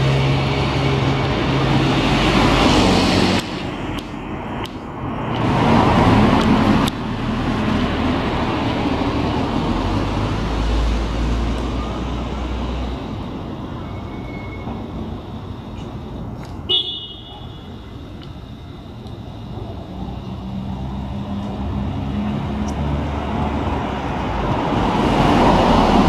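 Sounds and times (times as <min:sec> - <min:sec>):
traffic hum: 0:00.0 - 0:26.0
high-pitched car horn toot: 0:16.7 - 0:17.8
vehicle passing close: 0:19.8 - 0:26.0.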